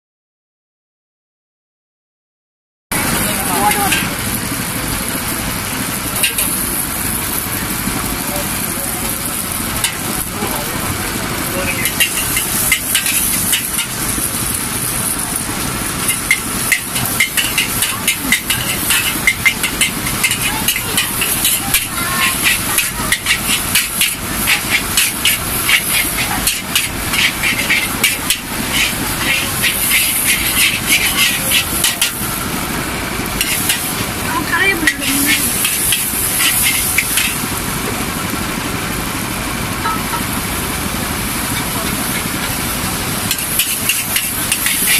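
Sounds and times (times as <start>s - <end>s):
frying sizzle and burner hiss: 2.9s - 44.9s
metal spatula clanking on wok: 3.1s - 4.2s, 11.7s - 14.1s, 15.9s - 32.2s, 33.4s - 34.0s, 34.8s - 37.4s, 39.8s - 40.3s, 43.3s - 44.9s.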